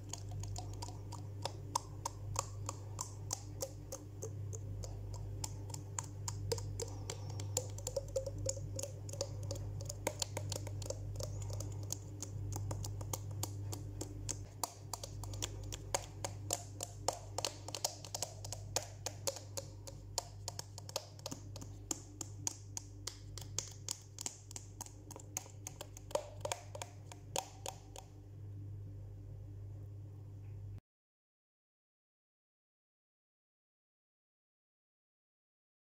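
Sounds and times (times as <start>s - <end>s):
mouth and finger clicks and pops: 0.0s - 28.1s
steady low hum: 0.0s - 30.8s.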